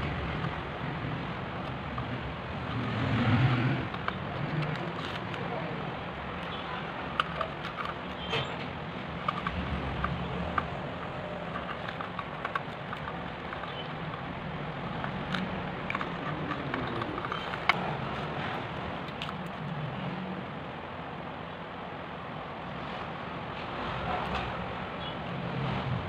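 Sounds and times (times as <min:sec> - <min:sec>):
tool clicking on plastic phone frame: 0:01.5 - 0:05.6, 0:06.4 - 0:19.8.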